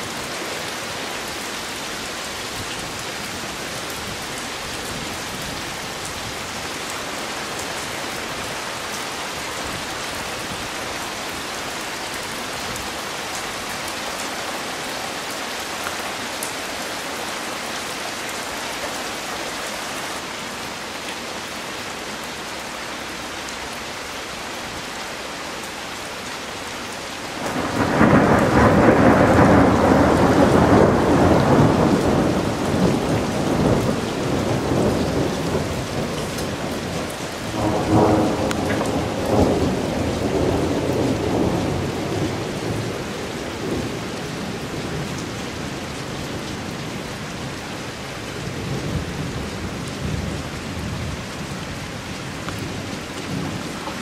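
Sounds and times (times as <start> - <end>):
heavy rain falling: 0.0 - 54.0
thunder rumbling: 27.4 - 44.0.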